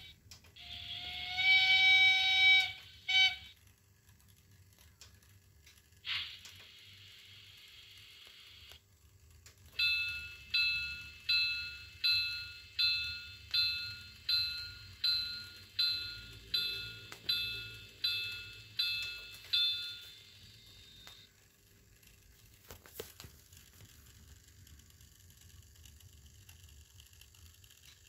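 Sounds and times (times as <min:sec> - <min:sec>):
locomotive bell ringing: 0:09.8 - 0:21.2.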